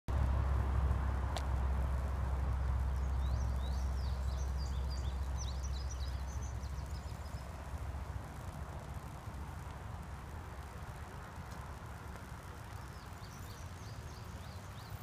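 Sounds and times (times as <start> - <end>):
low outdoor rumble: 0.1 - 15.0
songbird twittering: 2.9 - 7.7, 12.7 - 15.0.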